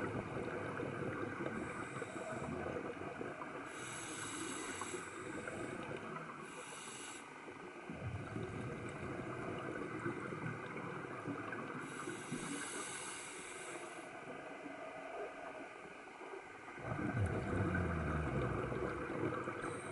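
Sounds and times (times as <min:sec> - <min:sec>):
muffled underwater noise: 0:07.9 - 0:19.9
high hiss: 0:11.9 - 0:14.0.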